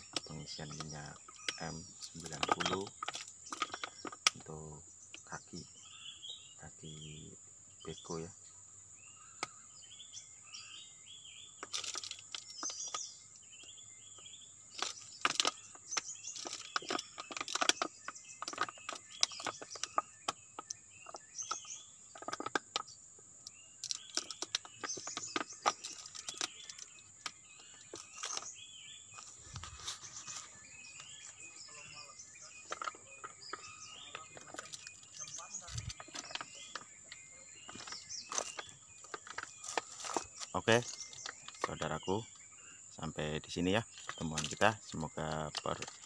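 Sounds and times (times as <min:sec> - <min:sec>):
plastic bottle clicking and crackling: 0:00.0 - 0:04.5, 0:11.6 - 0:13.7, 0:14.7 - 0:42.2, 0:43.8 - 0:46.0
birds chirping: 0:00.0 - 0:46.0.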